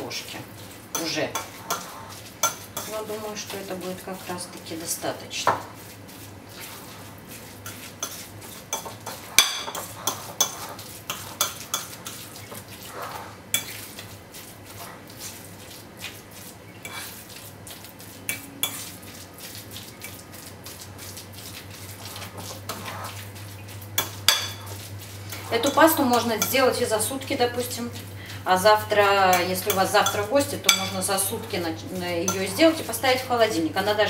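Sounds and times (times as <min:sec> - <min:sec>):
fork scraping ceramic bowl: 0:01.0 - 0:03.0, 0:05.8 - 0:20.2, 0:21.9 - 0:23.4, 0:24.0 - 0:26.9, 0:29.3 - 0:33.2.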